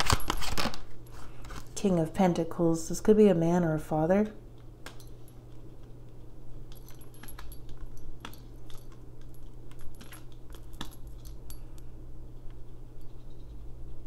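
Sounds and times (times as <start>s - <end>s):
cards being shuffled: 0.0s - 1.8s
low steady hum: 0.0s - 14.0s.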